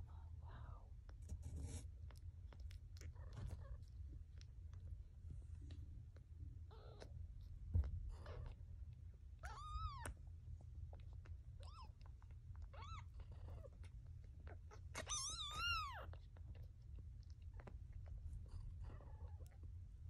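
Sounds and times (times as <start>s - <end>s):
kitten mewing: 14.4s - 16.2s.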